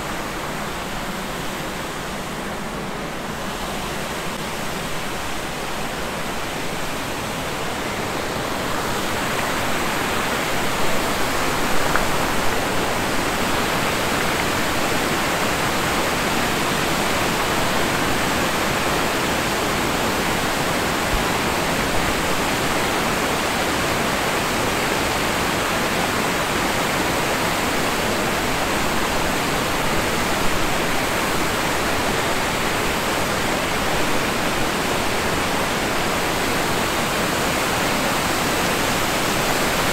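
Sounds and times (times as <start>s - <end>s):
water rushing over a weir: 0.0s - 39.9s.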